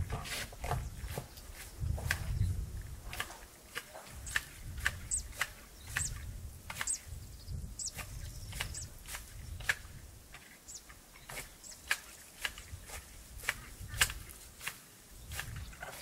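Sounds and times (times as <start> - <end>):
hand shears snipping: 3.1 - 7.0, 11.3 - 16.0.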